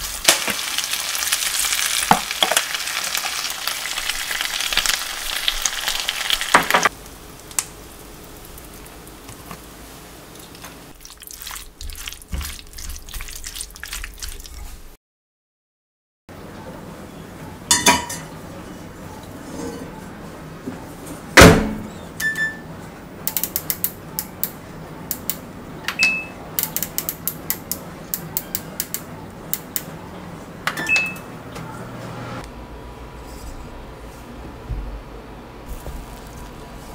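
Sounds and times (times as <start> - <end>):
oven door shutting: 21.4 - 22.6.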